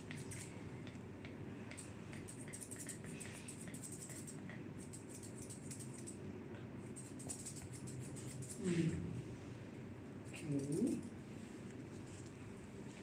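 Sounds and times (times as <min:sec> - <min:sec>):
scissors snipping hair: 0:00.0 - 0:06.2, 0:10.3 - 0:11.1.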